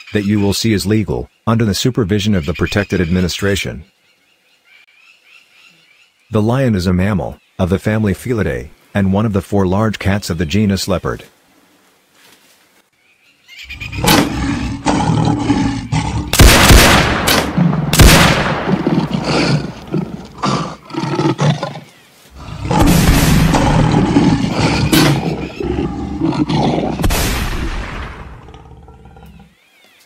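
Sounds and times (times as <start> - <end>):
lion growling and roaring: 13.7 - 29.5
sharp cracks: 14.0 - 14.6, 16.2 - 20.4, 22.6 - 25.3, 27.0 - 28.6.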